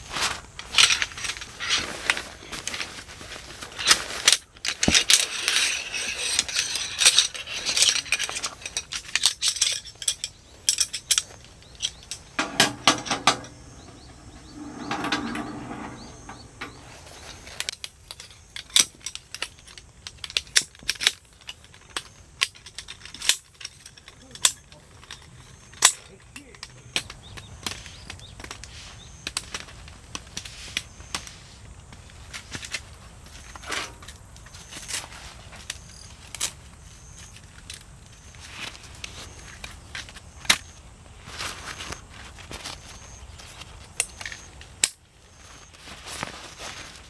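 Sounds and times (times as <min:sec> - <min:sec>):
metal poles clinking and clicking: 0:03.8 - 0:27.8.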